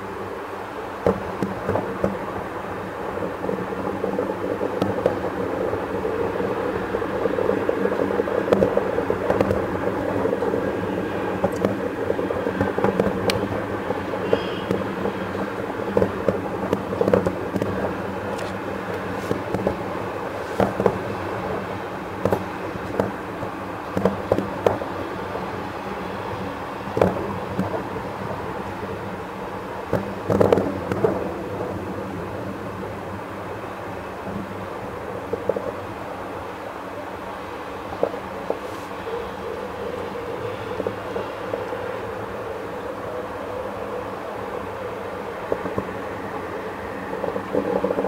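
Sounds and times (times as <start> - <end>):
fireworks exploding: 1.0 - 36.4, 37.6 - 43.0, 44.4 - 48.0
sharp fireworks bangs: 11.0 - 25.6.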